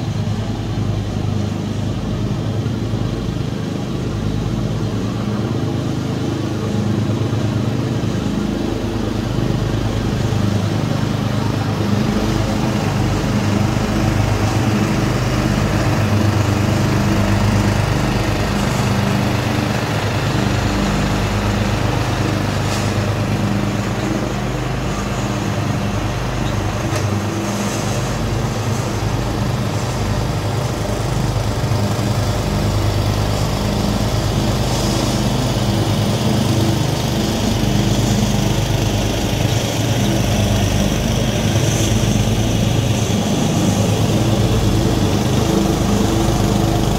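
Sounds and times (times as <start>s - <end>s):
mower engines droning: 0.0s - 46.9s.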